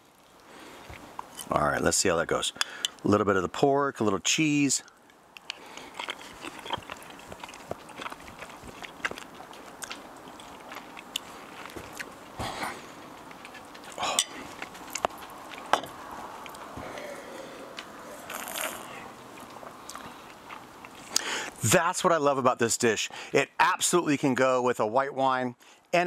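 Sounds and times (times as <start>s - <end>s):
man chewing: 0.0s - 1.5s, 4.9s - 21.6s.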